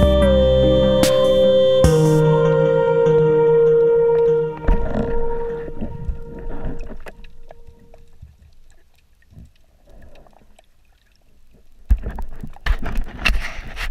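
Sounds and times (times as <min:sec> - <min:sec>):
steady music tone: 0:00.0 - 0:08.0
faint underwater clicks: 0:03.8 - 0:13.9.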